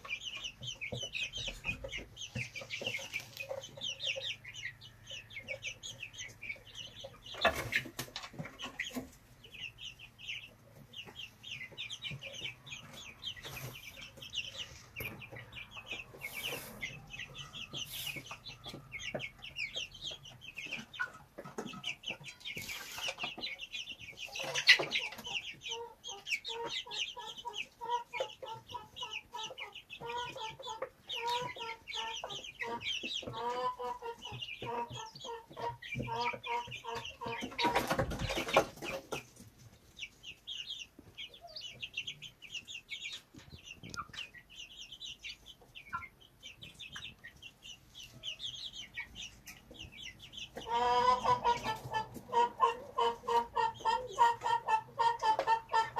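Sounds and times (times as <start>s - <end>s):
young chickens peeping: 0.0s - 55.9s.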